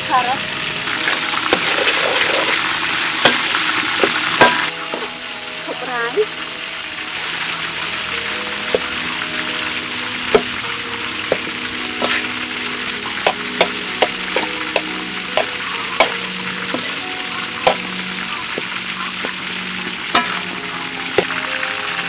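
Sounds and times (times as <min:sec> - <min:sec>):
rice sizzling in a wok: 0:00.0 - 0:22.0
metal spatula scraping a pan: 0:01.1 - 0:05.9, 0:11.3 - 0:12.4, 0:13.0 - 0:21.5.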